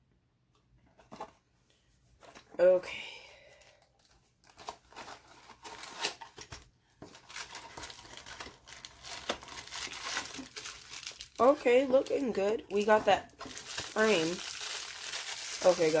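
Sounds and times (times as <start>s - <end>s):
plastic bags crinkling: 3.6s - 16.0s.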